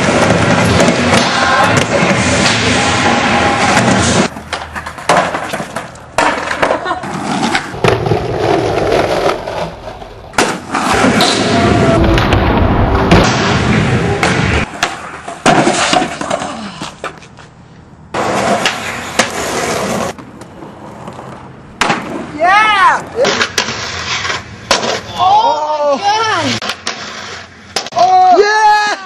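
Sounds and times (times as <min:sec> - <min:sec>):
skateboard trucks grinding on ledges: 0:00.0 - 0:12.4, 0:13.0 - 0:17.4, 0:18.1 - 0:25.3, 0:26.2 - 0:28.0
skateboard wheels rolling: 0:00.0 - 0:28.4
sharp clacks of skateboard landing: 0:03.8 - 0:09.4.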